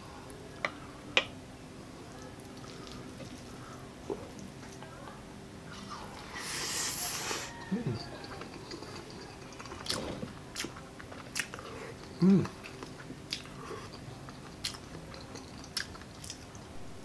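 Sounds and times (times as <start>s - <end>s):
chewing and biting food: 7.8s - 16.7s
person humming: 12.2s - 12.5s.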